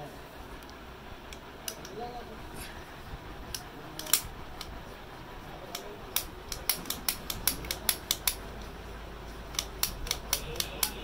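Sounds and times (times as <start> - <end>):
flywheel rotor metallic clicks: 3.5 - 4.8, 5.6 - 8.7, 9.5 - 11.0.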